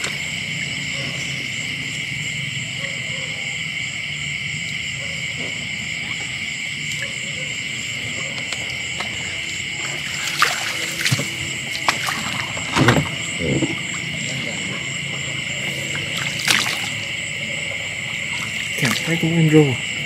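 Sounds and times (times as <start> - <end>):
insects trilling: 0.0 - 20.0
splashes in water: 9.7 - 14.6, 15.7 - 17.2, 18.2 - 19.4.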